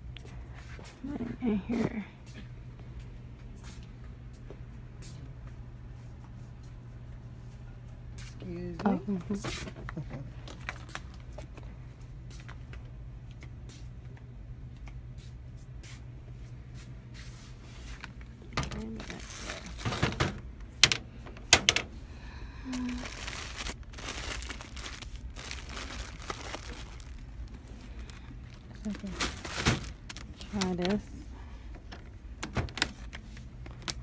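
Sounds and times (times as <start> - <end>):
steady low hum: 0.0 - 34.0
plastic packaging crinkling: 18.0 - 21.0, 22.7 - 31.0.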